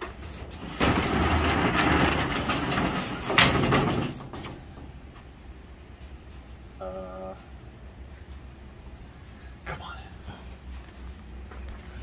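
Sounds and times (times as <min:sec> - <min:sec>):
roll-up door rumbling and rattling: 0:00.0 - 0:05.4
metal door clank: 0:00.6 - 0:04.9.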